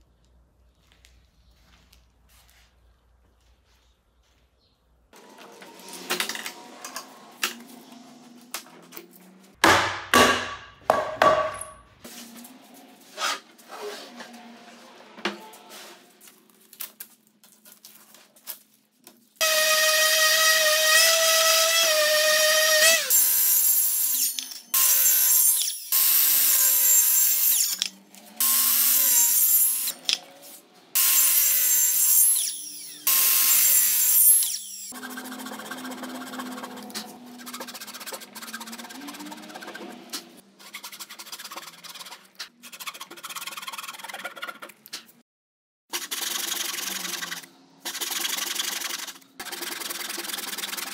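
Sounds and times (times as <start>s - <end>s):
circular saw cutting wood: 19.4s - 41.7s.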